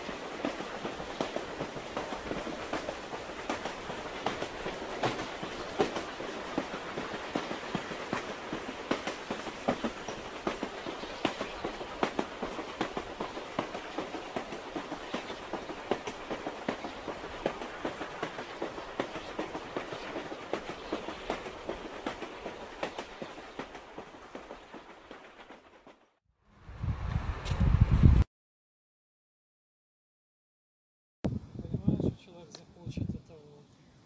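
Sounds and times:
wheels clicking on track: 0.0 - 26.1
train ride noise: 0.0 - 26.2.

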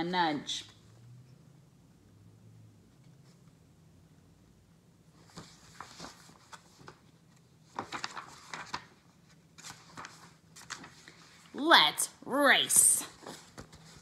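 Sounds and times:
book pages turning: 5.2 - 11.4, 12.7 - 14.0.

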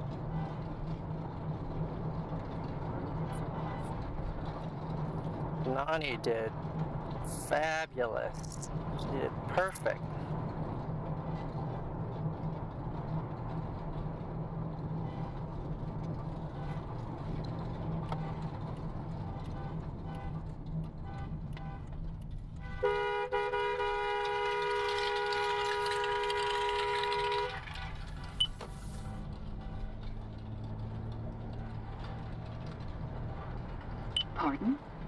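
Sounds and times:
car cabin road noise: 0.0 - 35.0
two-tone car horn: 19.2 - 20.4, 22.6 - 27.7.

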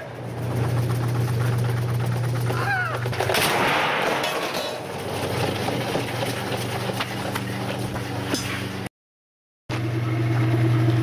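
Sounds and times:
gunshots hitting metal: 3.3 - 4.9.

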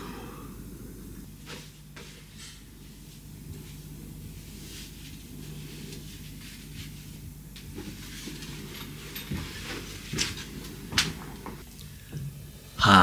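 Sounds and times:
low steady hum: 0.0 - 13.0
clothing rustling: 1.4 - 11.6.

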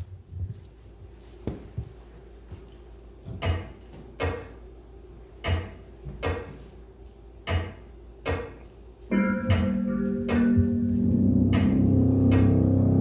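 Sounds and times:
held musical notes: 9.1 - 13.0.

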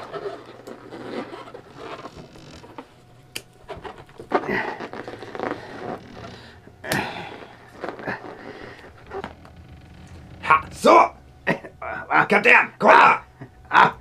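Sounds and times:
balloon rubber creaking: 0.0 - 12.2.

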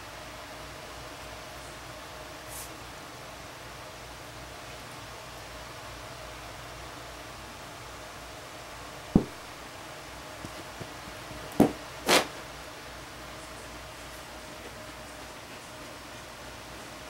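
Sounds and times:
skunk thumping: 9.2 - 9.7, 10.4 - 12.4.

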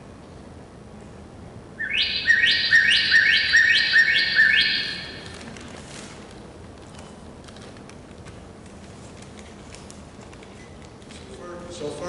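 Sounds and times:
recorded bird song from small speaker: 1.8 - 5.3.

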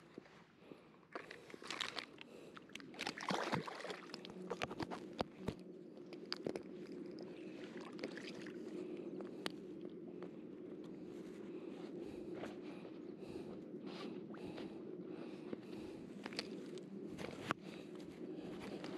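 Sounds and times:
steady low hum: 0.0 - 18.9.

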